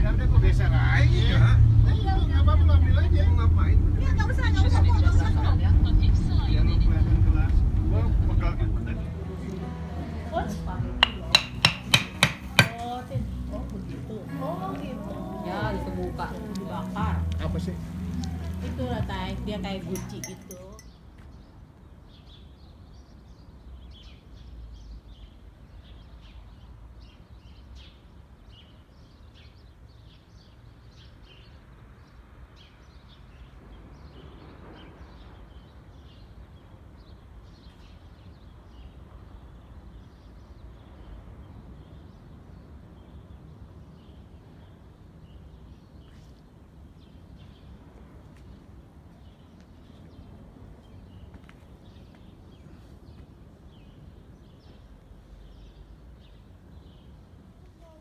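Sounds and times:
low background rumble: 0.0 - 20.9
small birds chirping: 10.7 - 58.0.

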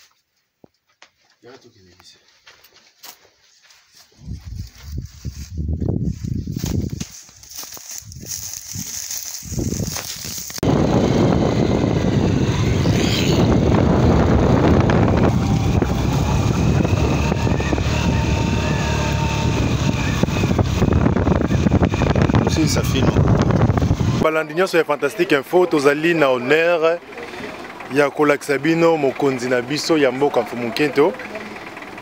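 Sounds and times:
wind on the microphone: 4.2 - 7.1, 8.0 - 24.2
vehicle running noise: 4.2 - 32.0.

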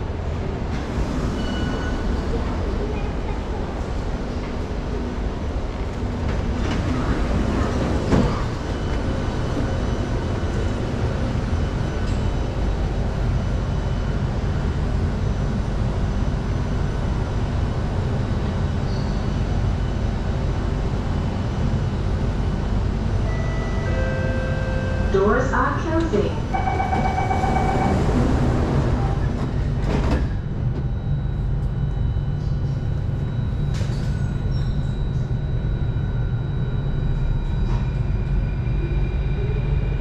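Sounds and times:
low rumble of train: 0.0 - 40.0.

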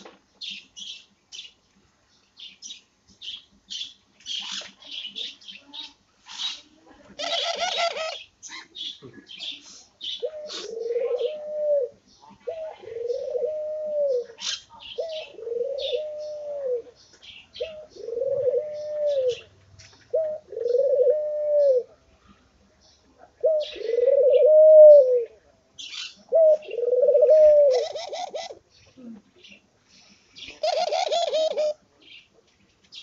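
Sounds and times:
dove cooing: 7.2 - 8.7, 9.4 - 19.5, 20.1 - 22.0, 23.4 - 25.4, 26.0 - 29.1, 30.5 - 31.8.

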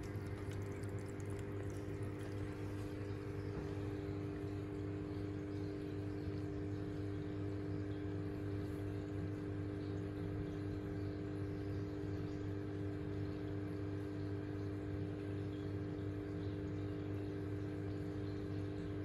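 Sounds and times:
moving water: 0.0 - 3.8
aquarium filter pump hum: 0.0 - 19.0.

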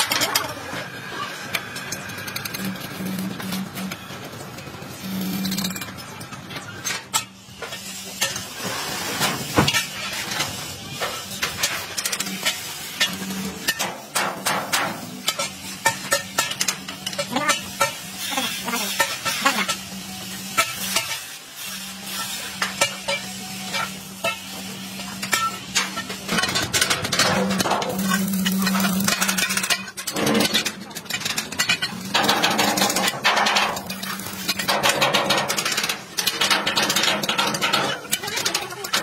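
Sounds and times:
welding arc crackling: 0.0 - 39.0.

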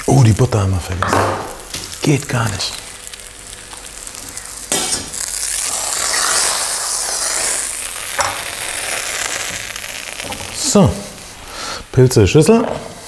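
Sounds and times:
butter sizzling in a frying pan: 0.0 - 11.6.

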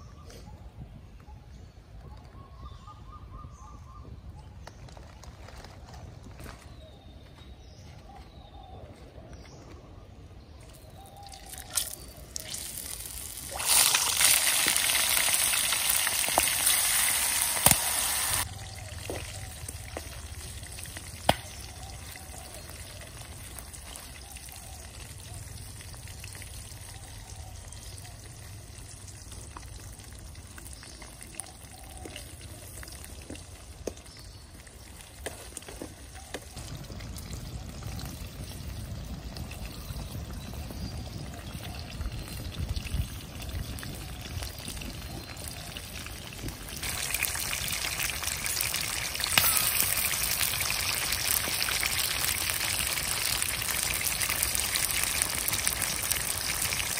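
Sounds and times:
hot oil sizzling in a wok: 11.1 - 35.6, 36.6 - 56.9.

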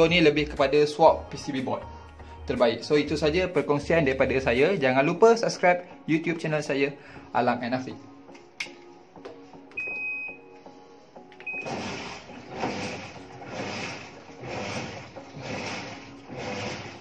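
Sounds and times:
soft background music: 0.0 - 17.0
washing machine beeps: 9.7 - 10.6, 11.4 - 13.0
rhythmic whooshing: 11.6 - 17.0.

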